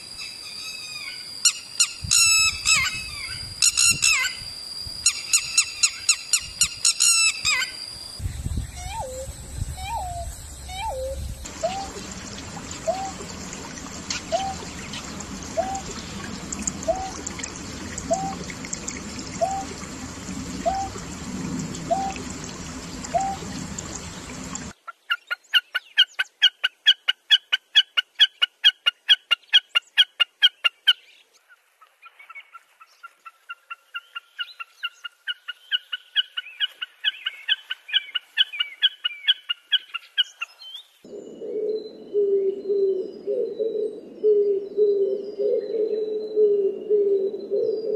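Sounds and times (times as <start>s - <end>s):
background hiss: 0.0s - 24.7s
bird fast ticking song: 5.1s - 21.1s
bird low hooting notes: 5.1s - 24.7s, 41.1s - 47.9s.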